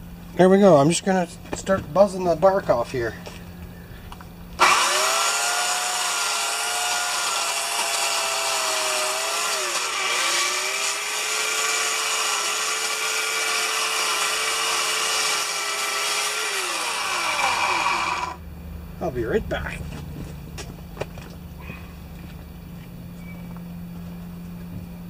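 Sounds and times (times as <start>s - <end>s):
electric chainsaw cutting bark: 4.6s - 18.4s.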